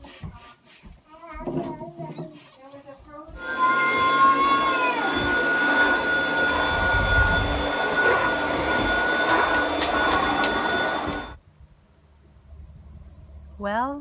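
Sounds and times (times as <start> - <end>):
small motor whining: 3.4 - 11.4.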